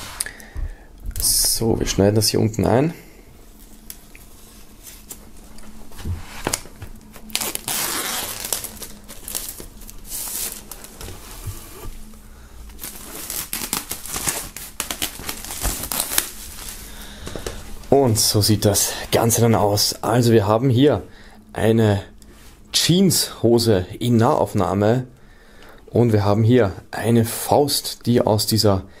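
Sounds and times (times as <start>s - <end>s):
plastic wrap crinkling and tearing: 6.3s - 20.0s.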